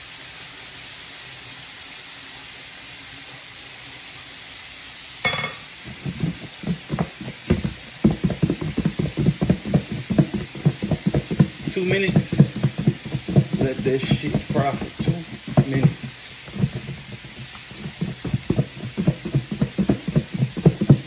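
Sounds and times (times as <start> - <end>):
fish sizzling in oil: 0.0 - 21.0
plastic tub knocking and rubbing: 5.8 - 21.0.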